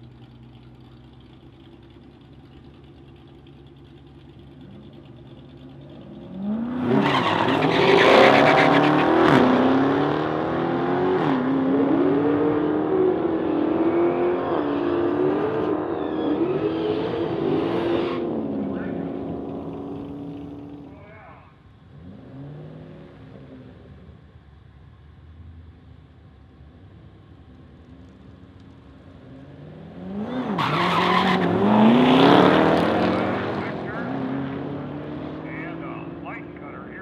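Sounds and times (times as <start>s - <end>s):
car engines idling: 0.0s - 9.7s, 18.2s - 37.0s
car engines accelerating: 0.0s - 37.0s.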